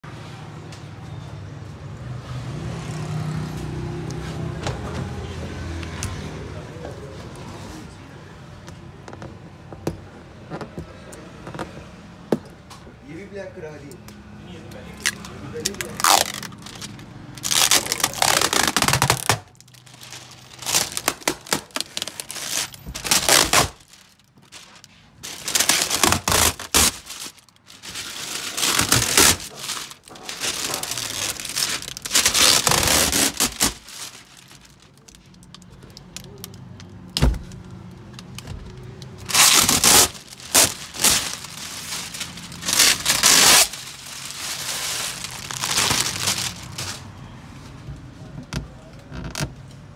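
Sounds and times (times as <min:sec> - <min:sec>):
plastic film crinkling: 0:15.0 - 0:36.9, 0:37.6 - 0:47.2.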